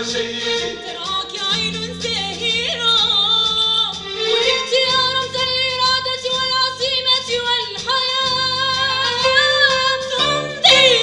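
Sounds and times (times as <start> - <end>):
vocal ensemble singing: 0.0 - 2.0, 9.2 - 11.0.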